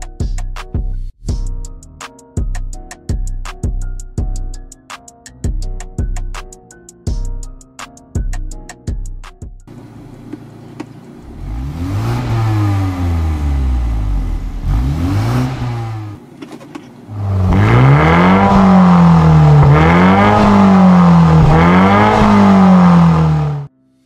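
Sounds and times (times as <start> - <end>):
car engine revving: 9.7 - 16.3, 17.0 - 23.7.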